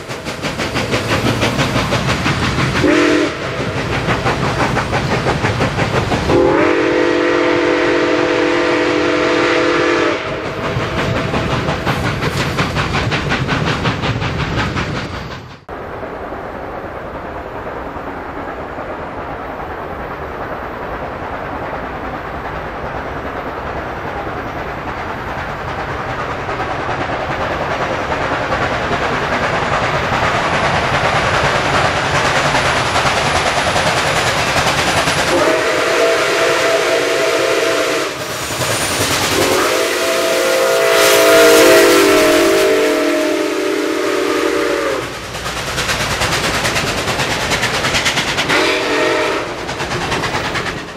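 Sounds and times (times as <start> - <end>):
steam hissing: 0.0 - 50.9
steam locomotive chime whistle: 2.8 - 3.6, 6.3 - 10.6, 35.3 - 38.4, 39.4 - 45.2, 48.5 - 49.6.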